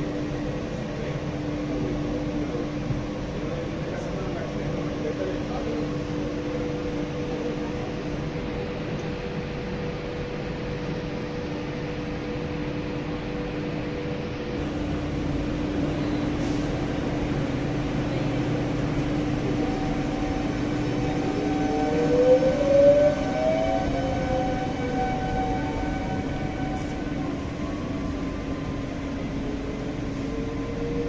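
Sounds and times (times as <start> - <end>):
electric train humming: 0.0 - 31.0
rising whine: 6.3 - 31.0.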